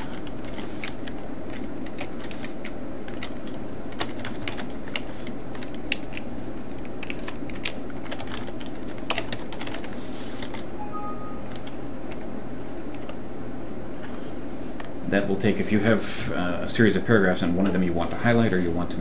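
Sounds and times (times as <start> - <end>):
low steady hum: 0.0 - 19.0
keyboard typing clicks: 10.8 - 12.3.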